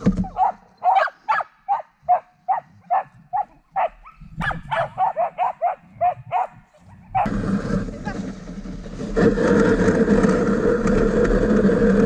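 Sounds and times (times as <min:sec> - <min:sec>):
dog barking: 0:00.3 - 0:07.3.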